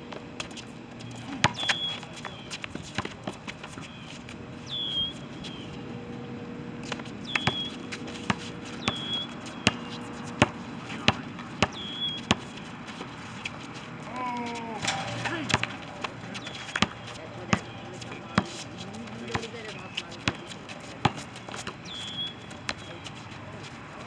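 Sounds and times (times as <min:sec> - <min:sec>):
basketball dribbling on asphalt: 0:00.4 - 0:04.0, 0:06.8 - 0:13.8, 0:15.5 - 0:23.2.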